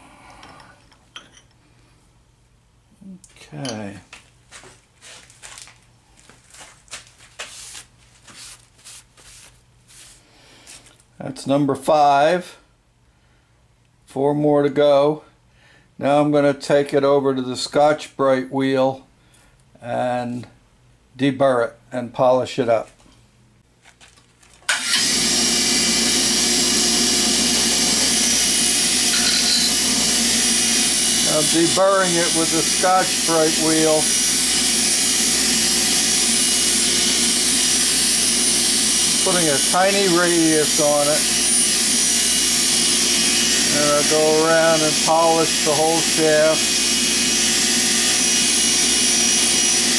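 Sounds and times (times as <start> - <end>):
bench grinder whining: 24.7 - 49.9
metal shaft scraping: 28.9 - 30.4.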